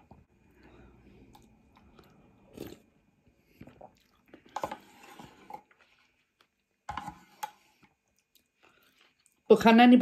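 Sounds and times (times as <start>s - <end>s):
chewing noodles: 1.1s - 6.6s.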